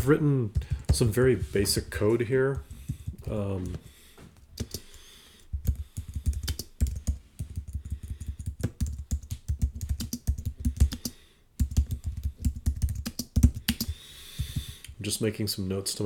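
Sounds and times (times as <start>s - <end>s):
typing on computer keyboard: 4.6s - 4.9s, 5.6s - 14.0s.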